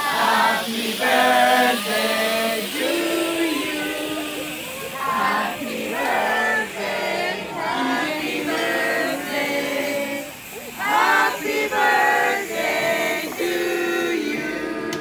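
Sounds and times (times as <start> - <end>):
group singing birthday song: 0.0 - 15.0.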